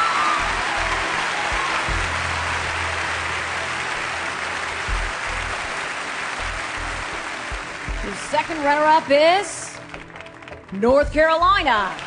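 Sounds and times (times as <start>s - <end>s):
music with pulsing bass: 0.0s - 8.4s
audience applauding: 0.0s - 12.0s.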